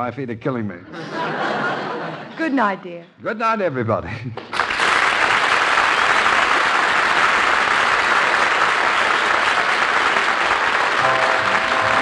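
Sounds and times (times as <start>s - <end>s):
audience applauding: 4.4s - 12.0s
music: 11.0s - 12.0s.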